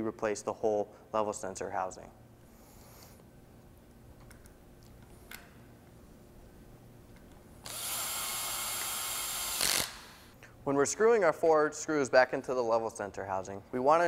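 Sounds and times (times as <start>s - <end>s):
cordless screw gun driving screw: 7.6s - 10.3s.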